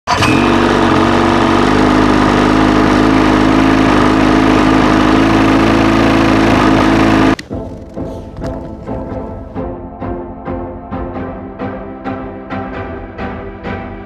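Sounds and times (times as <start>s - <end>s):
vehicle engine idling: 0.1s - 8.4s.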